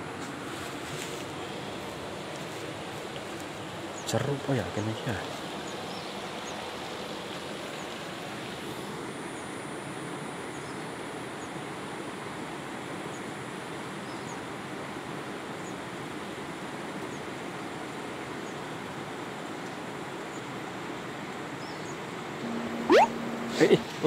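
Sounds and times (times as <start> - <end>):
faint high chirps: 22.4 - 24.0.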